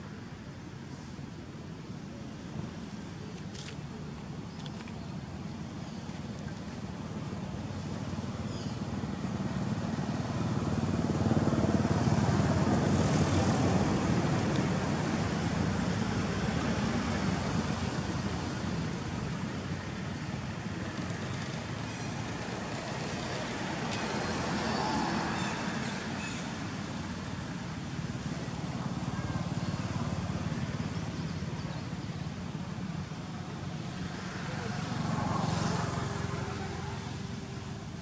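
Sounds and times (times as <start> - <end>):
road traffic rumble: 0.0 - 38.0
vehicle passing: 33.8 - 38.0.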